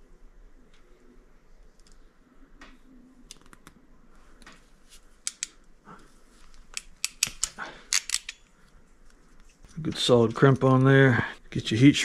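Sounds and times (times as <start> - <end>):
crimping tool clicking: 6.7 - 8.4.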